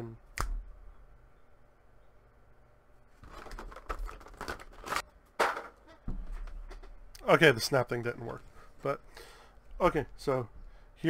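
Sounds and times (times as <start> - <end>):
packaging crinkling and tearing: 3.2 - 5.0.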